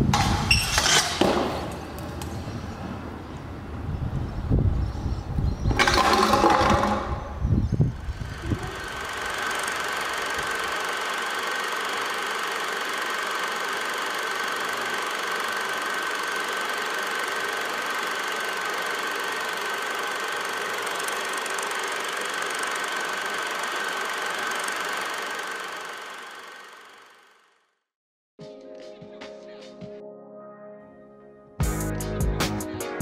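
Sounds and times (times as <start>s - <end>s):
machine whirring: 5.6s - 27.6s.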